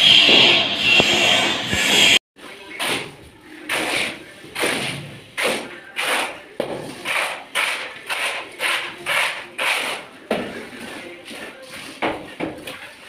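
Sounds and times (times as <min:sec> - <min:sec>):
straightedge scraping wet mortar: 0:02.7 - 0:12.0.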